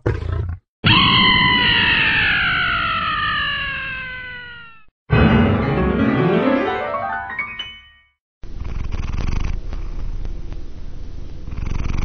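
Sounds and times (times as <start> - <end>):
piano rising run: 5.1 - 8.1
cat purring: 8.5 - 10.4, 11.4 - 12.0.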